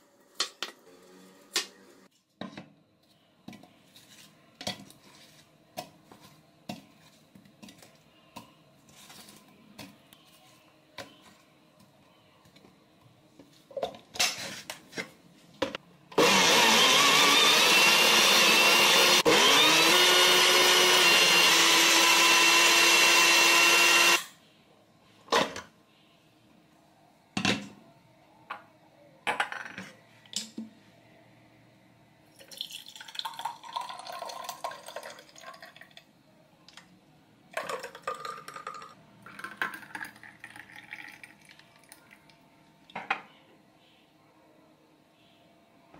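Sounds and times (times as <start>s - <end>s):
blender whining: 16.2s - 24.3s
juice pouring into mug: 32.3s - 36.1s, 37.5s - 42.2s.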